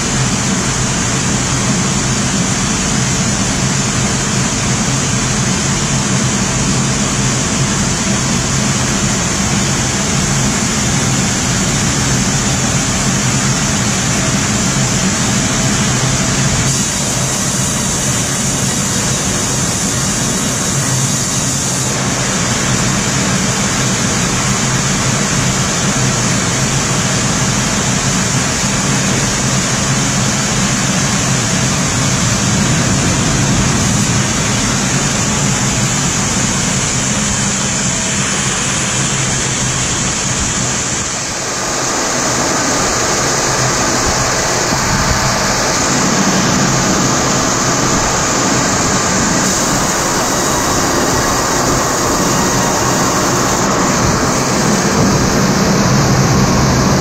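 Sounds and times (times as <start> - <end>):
sawmill running: 0.0 - 57.0
low hum: 29.1 - 57.0.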